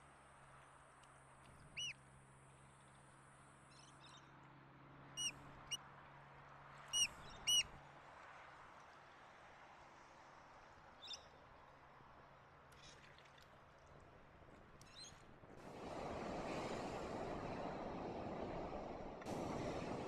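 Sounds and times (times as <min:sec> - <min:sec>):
oystercatcher piping calls: 0:07.0 - 0:07.6.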